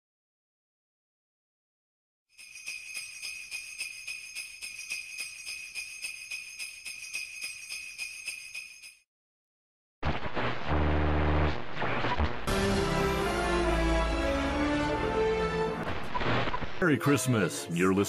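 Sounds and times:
jingle bells shaking: 0:02.4 - 0:09.0.

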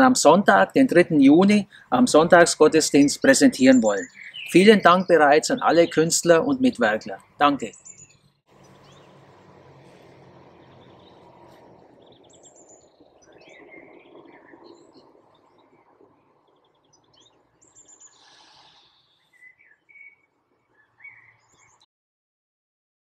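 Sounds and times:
small birds chirping: 0:00.0 - 0:21.9
outdoor air rushing: 0:08.5 - 0:18.9.

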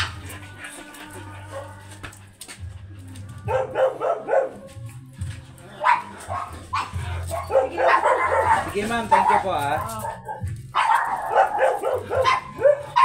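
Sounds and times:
small dog yapping: 0:05.8 - 0:13.0.

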